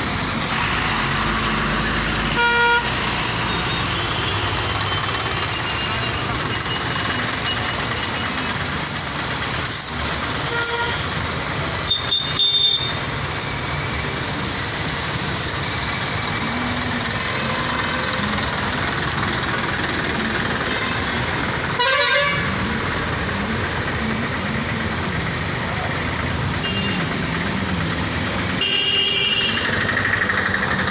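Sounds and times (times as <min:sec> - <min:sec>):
street traffic hum: 0:00.0 - 0:30.9
vehicle horns honking: 0:02.3 - 0:06.3, 0:10.4 - 0:11.2, 0:11.8 - 0:13.1, 0:21.7 - 0:22.6, 0:26.5 - 0:27.2, 0:28.6 - 0:29.8.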